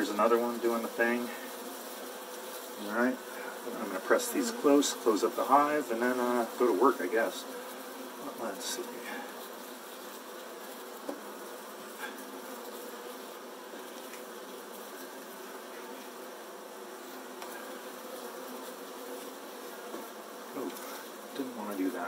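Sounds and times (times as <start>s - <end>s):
bees buzzing: 0.0s - 22.0s.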